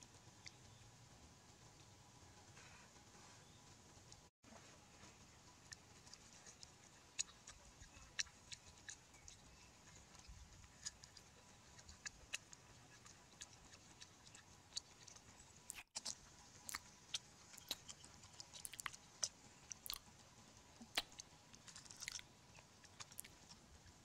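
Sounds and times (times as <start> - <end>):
chewing and biting meat: 5.5 - 20.1, 20.8 - 24.0.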